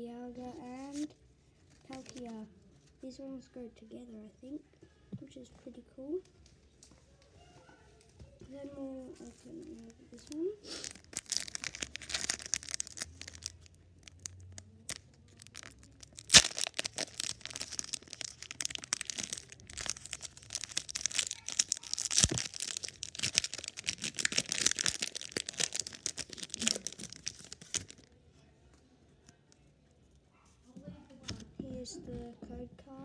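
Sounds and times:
foil wrapper tearing and crinkling: 10.2s - 28.1s
sharp crack of foil: 10.7s - 28.0s.

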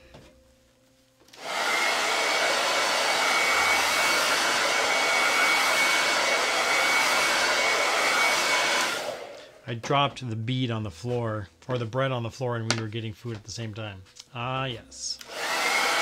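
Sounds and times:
hair dryer blowing: 1.3s - 9.6s, 15.2s - 16.0s.

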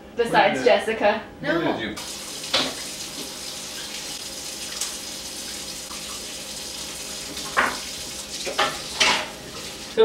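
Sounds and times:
water splashing into sink: 2.0s - 10.0s.

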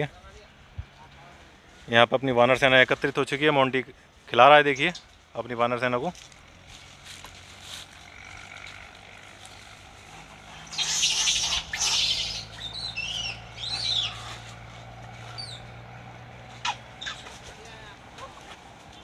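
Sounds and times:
high arching chirps and squeals: 10.5s - 15.8s, 16.5s - 17.5s
harsh two-part animal screech: 10.6s - 14.4s.

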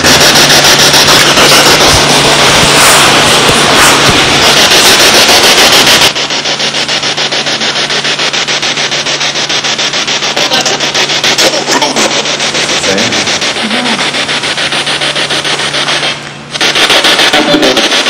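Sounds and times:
stuttering radio static: 0.0s - 14.6s, 15.7s - 18.0s
snatches of voice: 10.3s - 14.2s.

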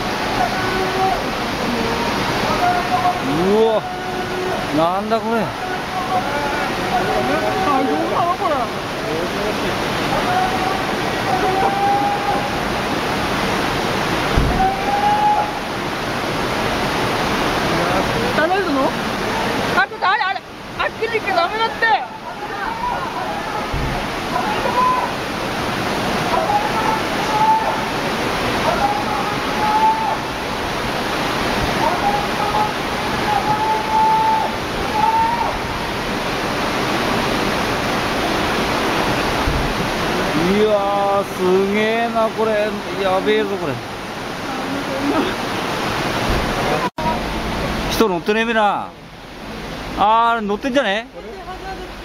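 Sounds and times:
floodwater rushing and roaring: 0.0s - 52.0s
dull thump: 14.3s - 14.8s, 23.7s - 24.1s, 46.3s - 46.6s.

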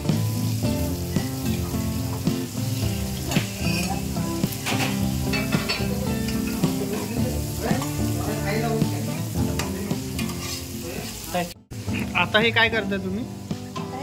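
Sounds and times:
background music: 0.0s - 14.0s
omelette sizzling in a pan: 0.0s - 14.0s
metal spatula scraping and tapping: 4.6s - 6.7s, 9.6s - 10.7s.

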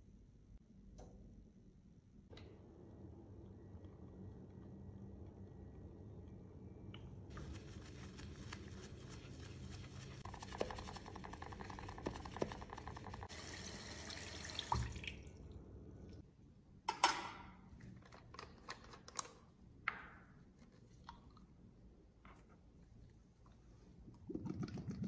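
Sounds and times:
brush scrubbing: 7.3s - 13.3s
tap water splashing in sink: 10.4s - 15.4s.

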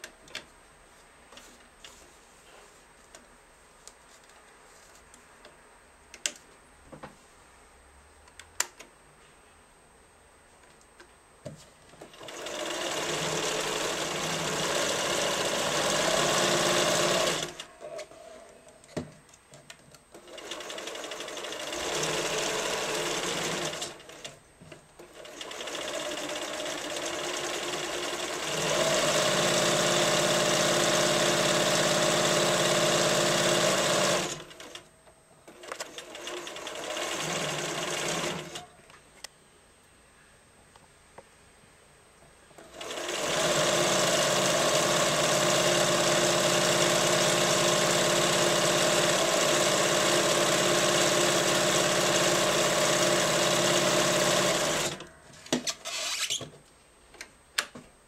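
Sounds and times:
sewing machine stitching: 12.0s - 18.1s, 20.2s - 24.4s, 25.0s - 34.8s, 35.5s - 38.7s, 42.6s - 56.4s.

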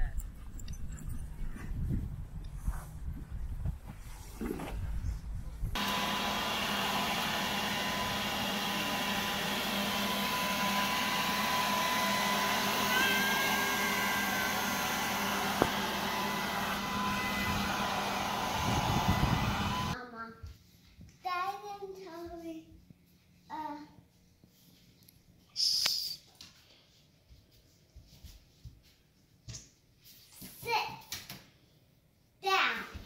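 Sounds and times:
electric leaf blower whirring: 5.7s - 20.0s.

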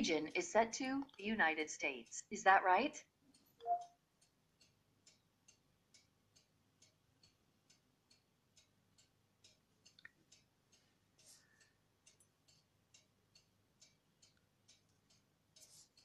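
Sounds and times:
faint regular ticking: 0.0s - 16.0s
soft tone: 3.6s - 4.0s.

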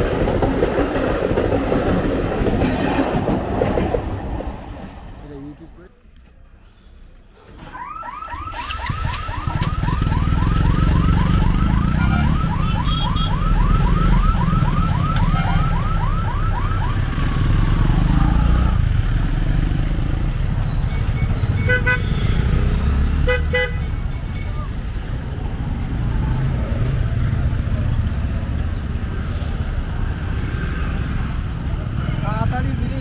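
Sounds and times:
motorcycle and car engines: 7.4s - 33.0s
electronic siren chirping: 7.6s - 17.8s
car horn toots: 21.6s - 22.4s, 23.2s - 24.5s.

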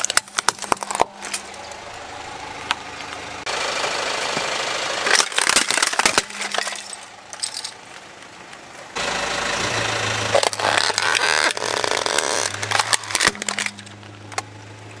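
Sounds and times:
plastic toys cracking and crunching: 0.0s - 1.8s, 5.0s - 8.3s, 10.3s - 14.5s
tyre grinding on gritty pavement: 0.0s - 15.0s
car engine running: 0.1s - 15.0s.

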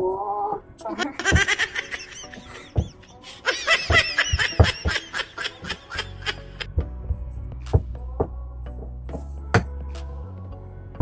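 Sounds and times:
woman laughing: 0.9s - 6.8s.

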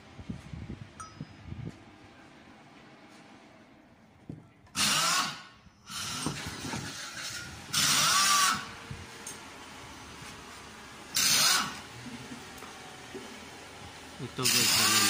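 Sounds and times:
power tool bursts: 4.8s - 8.7s, 11.1s - 11.8s, 14.4s - 15.0s.

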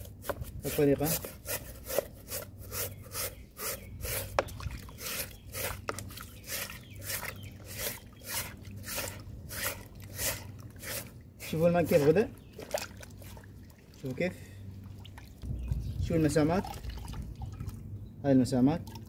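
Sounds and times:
stiff brush scrubbing wet filter: 0.0s - 15.3s.

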